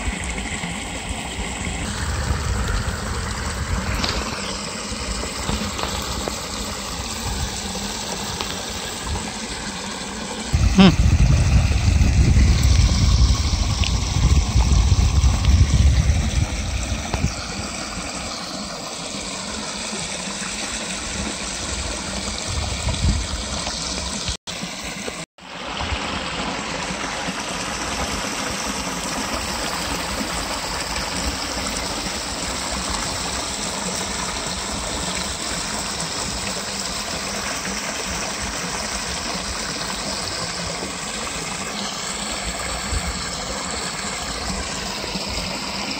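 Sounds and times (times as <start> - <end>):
water rushing over weir: 0.0 - 45.9
low rumble: 1.8 - 4.4, 10.6 - 17.5.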